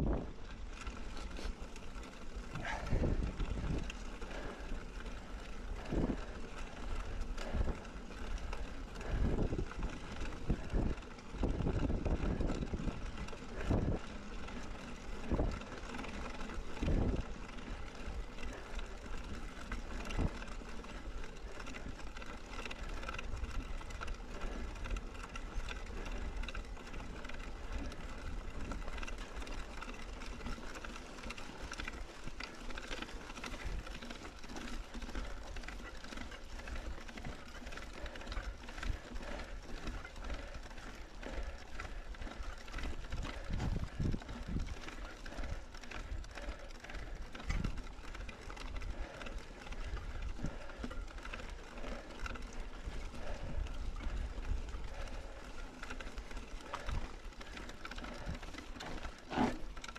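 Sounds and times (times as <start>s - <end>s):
wind noise on microphone: 0.0s - 0.4s, 2.6s - 4.4s, 9.0s - 13.0s, 13.6s - 14.0s, 16.8s - 17.2s, 43.1s - 44.7s
bike tyres rolling: 0.0s - 59.9s.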